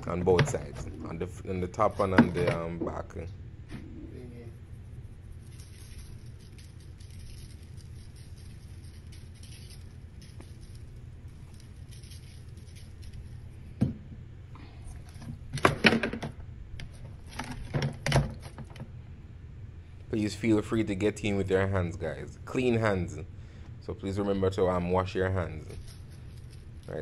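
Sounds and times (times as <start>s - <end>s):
low steady hum: 0.0s - 27.0s
seasoning shaker rattling: 4.7s - 13.7s, 25.6s - 27.0s.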